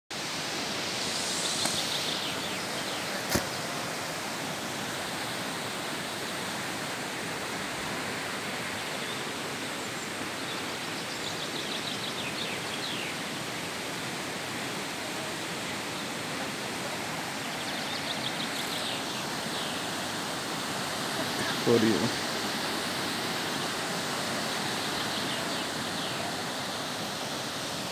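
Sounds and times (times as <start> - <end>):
river water rushing: 0.1 - 27.9
faint bird chirps: 17.4 - 20.0, 24.7 - 26.9.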